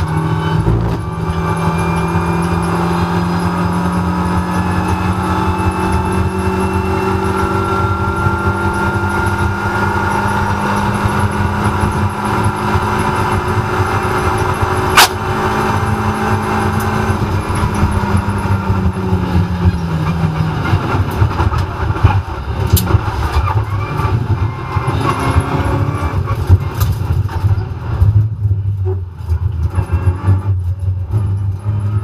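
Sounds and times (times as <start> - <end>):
race car engine: 0.0 - 32.0
sharp clacks: 14.9 - 15.2.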